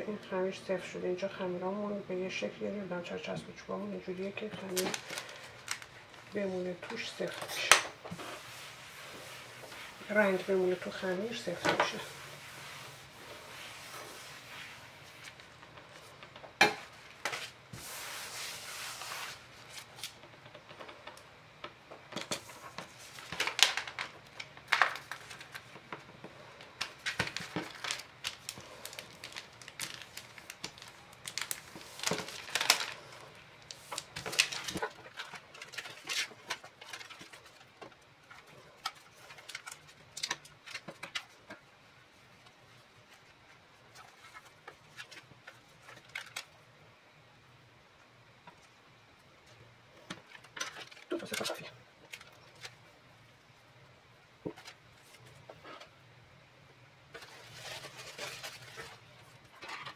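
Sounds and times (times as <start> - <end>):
plastic sheet crinkling: 4.3 - 20.6, 22.2 - 41.5, 57.1 - 59.9.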